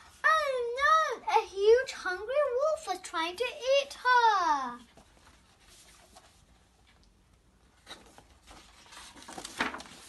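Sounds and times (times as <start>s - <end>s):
paper pages turning: 4.8s - 7.0s, 7.8s - 10.0s.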